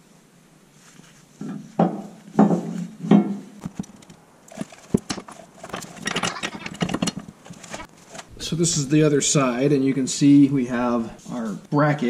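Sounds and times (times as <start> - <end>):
scraping clatter: 3.7 - 8.3.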